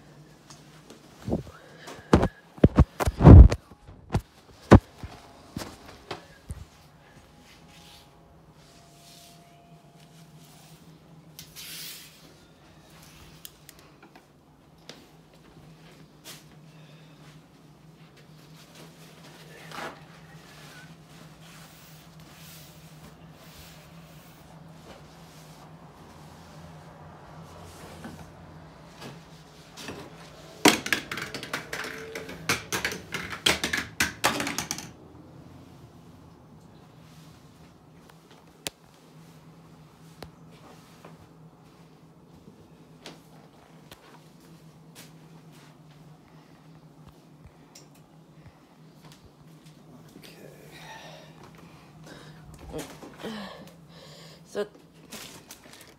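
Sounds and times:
steady low hum: 35.0 - 55.9.

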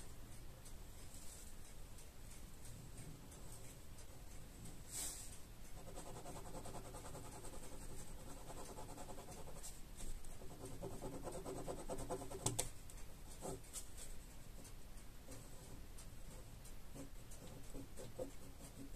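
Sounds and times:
sharp tick: 0.0 - 10.6
pen scratching on paper: 5.8 - 9.7, 10.3 - 12.7, 13.3 - 13.6.

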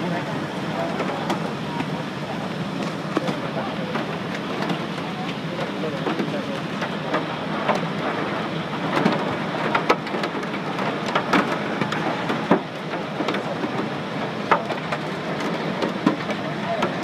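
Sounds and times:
rain pattering on fuselage: 0.0 - 17.0
hail knocking on fuselage: 0.4 - 17.0.

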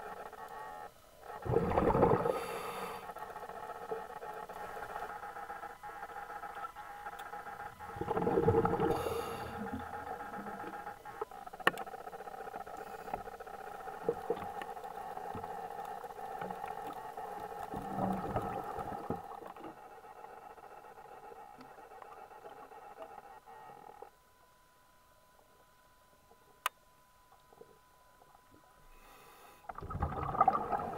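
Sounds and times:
steady hum of held tones: 0.0 - 30.9
clicks and crackles: 10.2 - 19.7
rushing gurgling water: 29.8 - 30.9.

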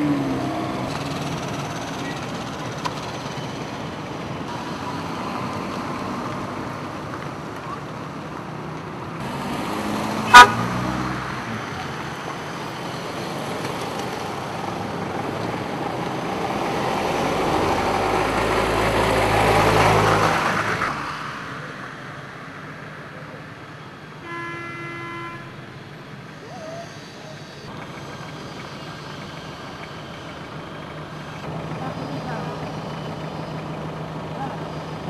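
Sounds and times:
vehicle passing close: 0.0 - 7.1, 9.2 - 22.0
distant traffic hum: 0.0 - 35.0
car horn: 10.2 - 11.0, 24.2 - 25.6.

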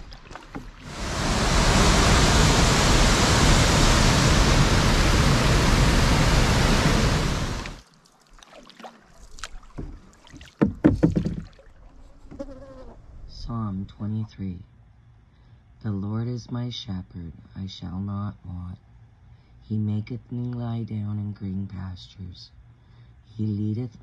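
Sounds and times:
canoe paddle splashing: 0.0 - 12.1
river rushing over rocks: 0.8 - 7.8.

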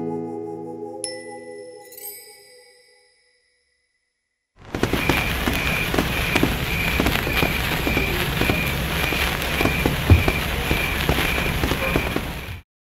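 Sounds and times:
sparkler fizzing and crackling: 4.6 - 12.6.

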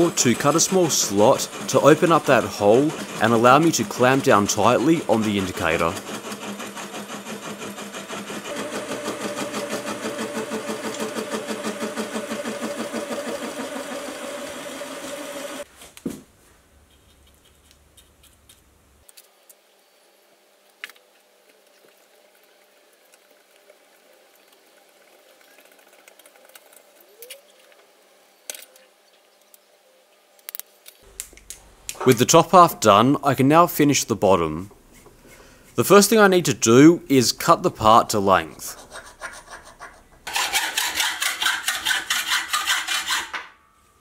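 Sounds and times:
slitting saw cutting metal: 0.0 - 15.7, 38.6 - 43.6.

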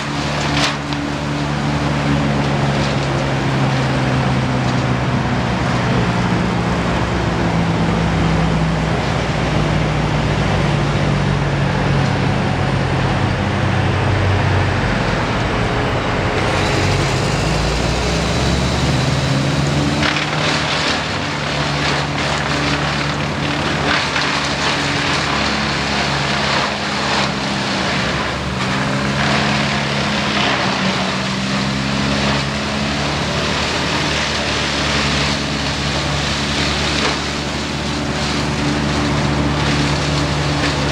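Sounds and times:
branches crackling through chipper: 0.0 - 40.9
diesel engines running: 0.0 - 40.9.

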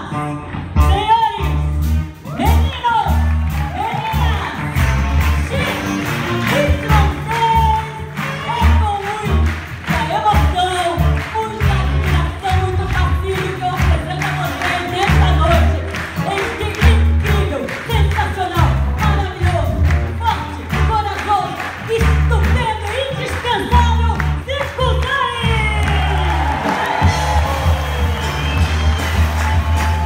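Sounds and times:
drums: 0.0 - 30.0
electric guitar: 0.0 - 30.0
woman singing: 5.4 - 25.8.

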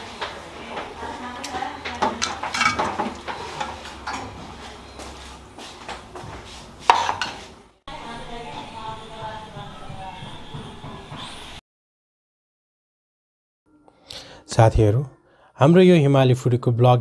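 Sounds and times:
metal spoon clinking on pot: 2.2 - 3.0.

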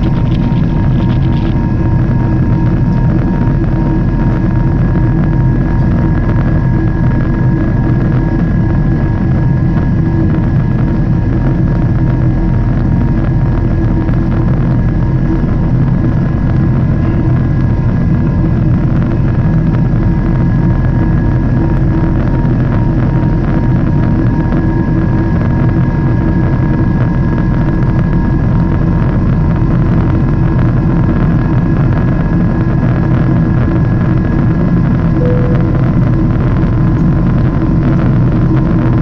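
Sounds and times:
jet engine and rushing air: 35.2 - 36.5.

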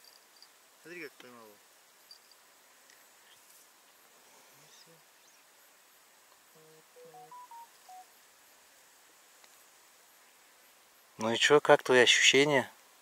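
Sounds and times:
short electronic beeps: 7.0 - 8.1.

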